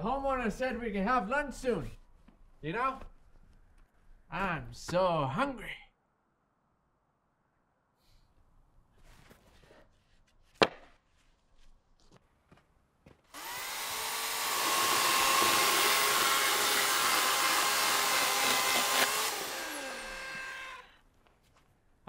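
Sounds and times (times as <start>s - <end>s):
power saw cutting wood: 13.4s - 20.9s.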